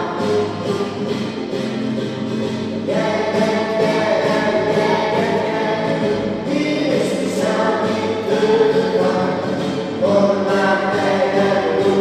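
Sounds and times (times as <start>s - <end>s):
choir singing: 2.8s - 12.0s.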